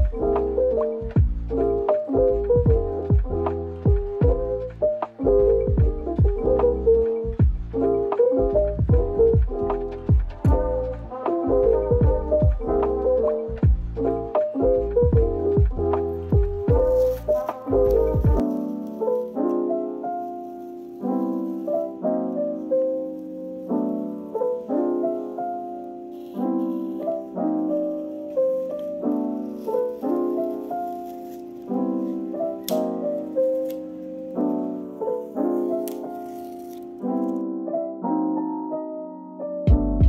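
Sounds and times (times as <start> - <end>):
music track with a beat: 0.0 - 20.2, 39.7 - 40.0
gentle piano piece: 0.0 - 40.0.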